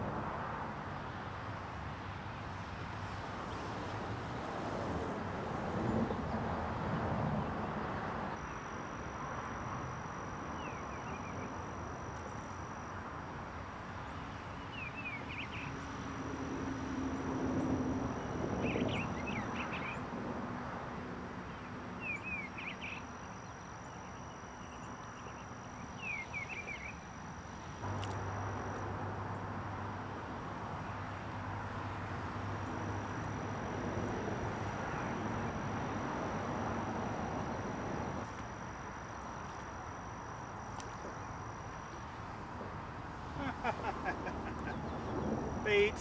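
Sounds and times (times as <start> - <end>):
thin high whine: 8.2 - 46.0
bird chirping: 10.5 - 11.6, 21.5 - 27.1
single click: 27.9 - 28.2.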